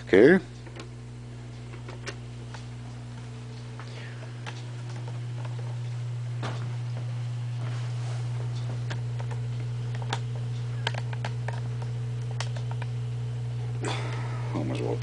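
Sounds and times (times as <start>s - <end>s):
amplifier electrical hum: 0.0s - 15.0s.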